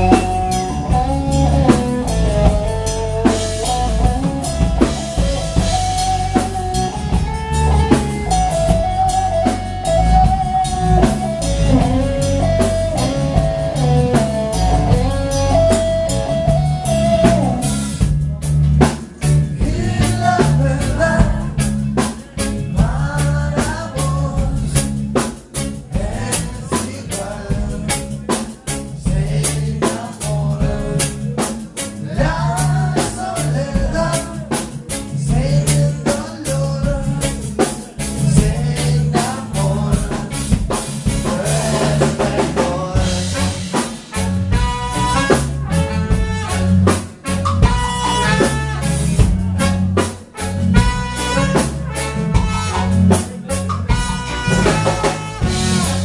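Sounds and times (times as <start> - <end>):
saxophone: 0.0 - 18.2, 43.0 - 56.0
man singing: 0.0 - 46.6, 47.7 - 56.0
drum kit: 0.0 - 56.0
live band playing: 0.0 - 56.0
trumpet: 43.3 - 56.0.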